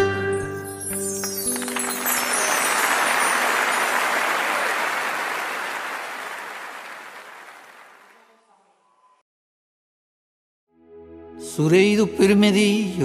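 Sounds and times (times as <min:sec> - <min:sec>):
audience applauding: 0:00.8 - 0:08.3.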